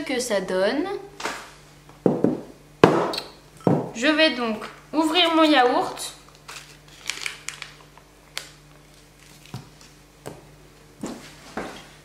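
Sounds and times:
foil seal crinkling: 6.2s - 10.0s.

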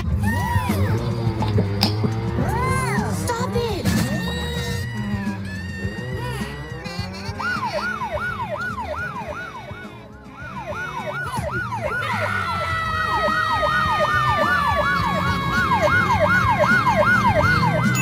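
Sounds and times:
police siren yelp: 2.4s - 18.0s
falling steady siren tone: 4.2s - 18.0s.

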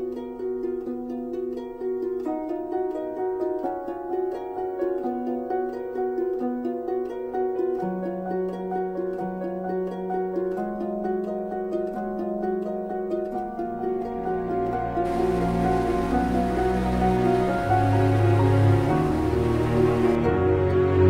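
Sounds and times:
held low note: 15.0s - 20.2s.

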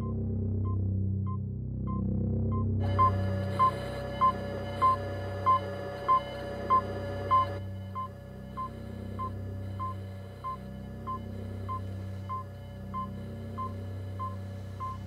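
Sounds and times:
low droning hum: 0.0s - 15.0s
short electronic beeps: 2.8s - 12.4s.

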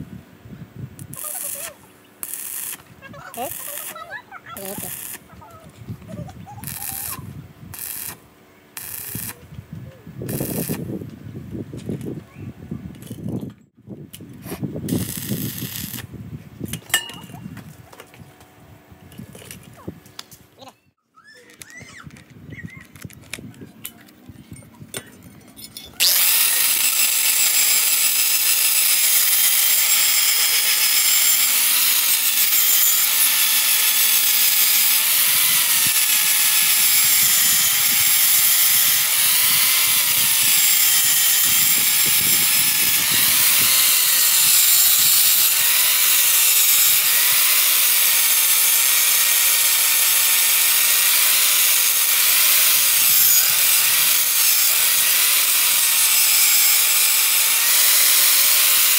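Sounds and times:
angle grinder grinding steel: 1.0s - 5.4s, 6.5s - 9.4s, 10.3s - 11.0s, 14.9s - 16.1s, 23.8s - 58.9s.

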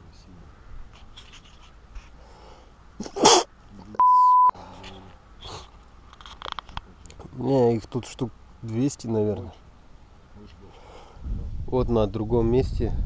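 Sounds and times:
censor bleep tone: 4.0s - 4.6s.

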